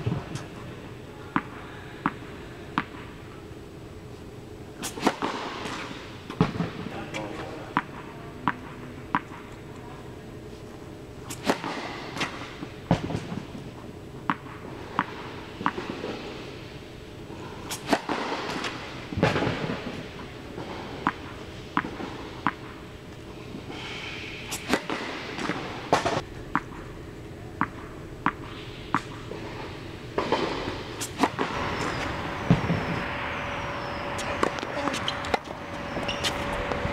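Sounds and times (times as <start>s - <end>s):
tennis ball bouncing: 1.3s - 3.1s, 4.8s - 9.6s, 11.3s - 16.0s, 17.7s - 20.0s, 21.0s - 22.8s, 24.5s - 26.9s, 27.5s - 36.8s
racket hitting ball: 1.3s - 3.4s, 4.8s - 9.6s, 11.2s - 16.2s, 17.6s - 22.9s, 24.4s - 36.9s.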